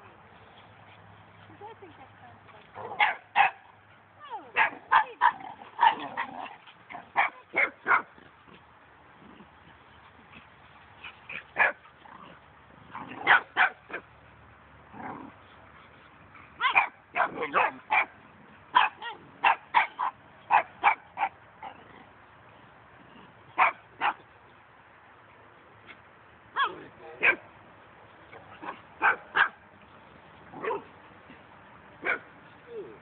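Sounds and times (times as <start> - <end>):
dogs barking and yipping: 2.8 - 8.6, 9.2 - 14.3, 15.0 - 21.9, 23.4 - 24.4, 25.8 - 27.5, 28.3 - 29.6, 30.4 - 32.8.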